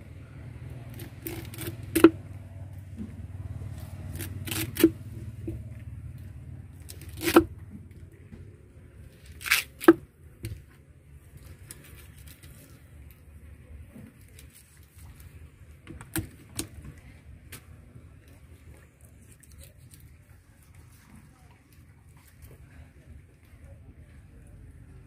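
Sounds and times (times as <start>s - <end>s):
low steady rumble: 0.0s - 25.0s
knife cutting fish on board: 6.9s - 7.5s.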